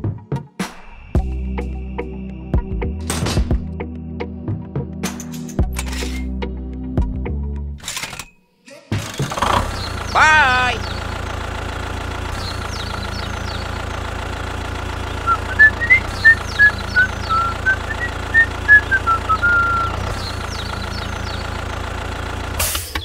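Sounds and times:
tractor engine humming: 9.0 - 23.0
person whistling a tune: 15.3 - 20.0.

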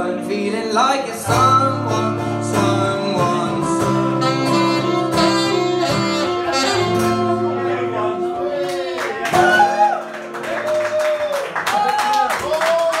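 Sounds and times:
acoustic guitar strumming: 0.0 - 10.5
saxophone long notes: 3.2 - 10.6.

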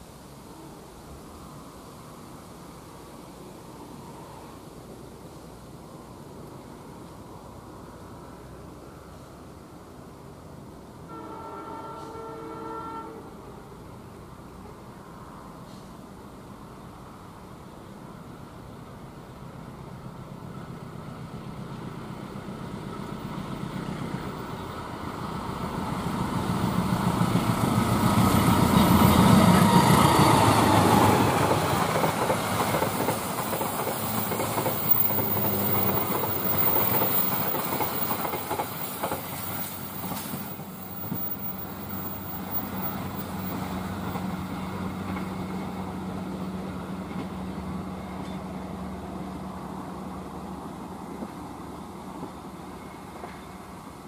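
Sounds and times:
diesel locomotive passing: 0.0 - 54.0
wheels clacking over rail joints: 26.1 - 46.2.

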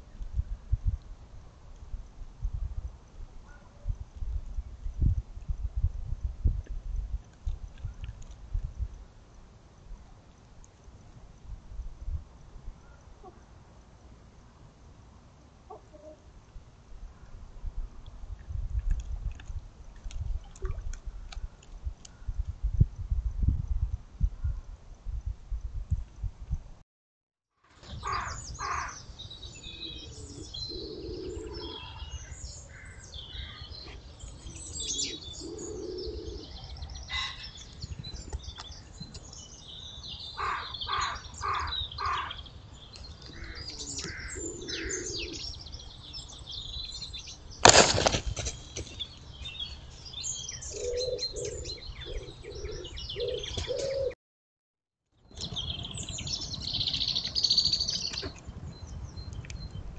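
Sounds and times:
lower repeated bird calls: 27.8 - 47.2, 48.9 - 54.2
songbirds chirping and singing: 27.8 - 47.6, 48.5 - 54.2
sharp crack: 47.6 - 48.6.

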